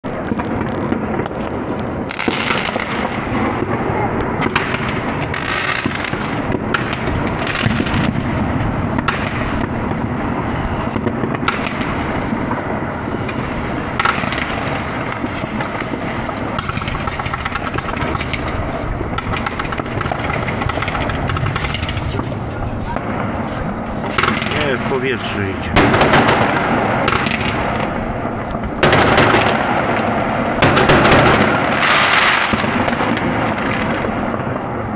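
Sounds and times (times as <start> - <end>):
fireworks popping and banging: 0.0 - 34.9.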